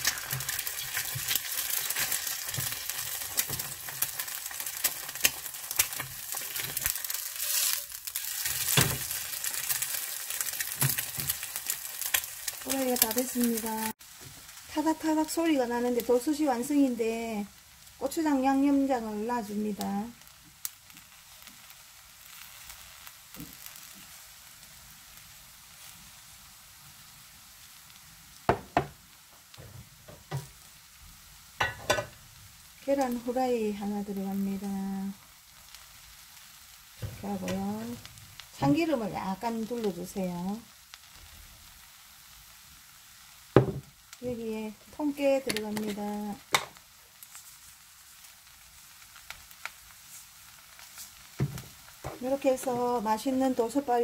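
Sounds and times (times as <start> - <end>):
egg sizzling in oil: 0.0 - 54.0
rice crackling in hot pot: 0.0 - 54.0
spatula scraping pan: 5.8 - 9.1.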